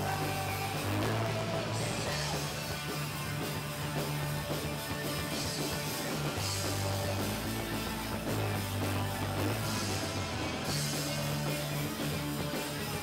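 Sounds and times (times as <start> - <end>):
punk rock band playing: 0.0 - 13.0.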